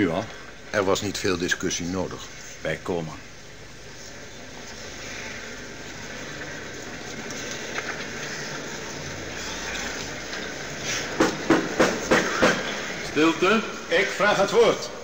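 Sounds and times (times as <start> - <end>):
gavel knocking: 11.2 - 12.7.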